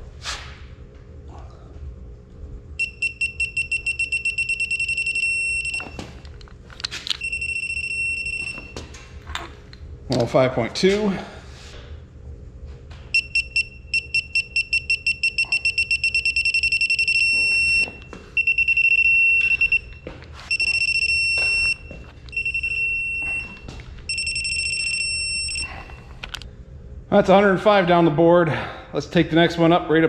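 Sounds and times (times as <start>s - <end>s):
short high beeps: 2.8s - 6.0s, 7.2s - 8.7s, 13.2s - 19.9s, 20.5s - 25.7s
steady electronic tone: 2.8s - 6.3s, 13.2s - 26.1s.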